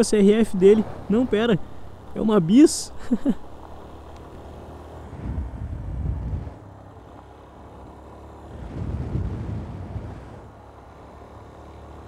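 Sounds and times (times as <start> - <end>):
motorcycle engine running: 0.0 - 12.0
wind rumbling on microphone: 5.0 - 7.1, 8.5 - 10.6.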